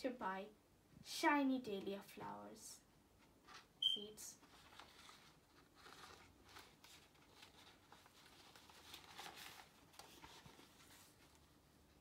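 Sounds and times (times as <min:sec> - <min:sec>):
paper sheets rustling: 0:04.4 - 0:12.0.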